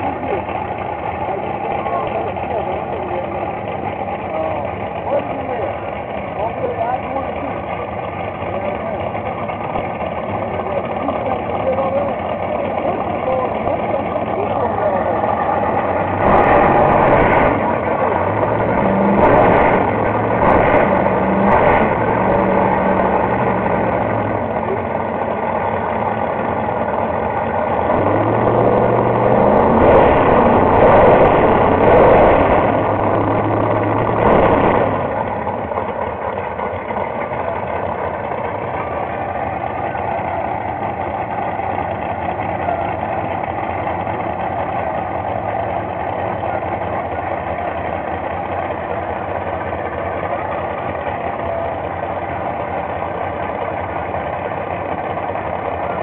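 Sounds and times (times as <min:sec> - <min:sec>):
race car engines idling: 0:00.0 - 0:56.0
race car engines revving: 0:00.0 - 0:56.0.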